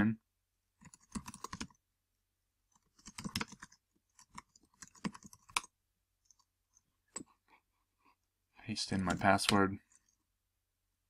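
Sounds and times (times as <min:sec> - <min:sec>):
typing on computer keyboard: 0:00.8 - 0:01.8, 0:02.8 - 0:05.7.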